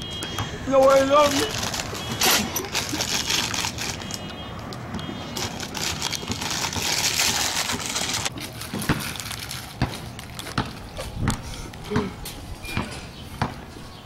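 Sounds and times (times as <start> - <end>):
plastic snack bag rustling: 1.2 - 4.3, 5.3 - 10.8.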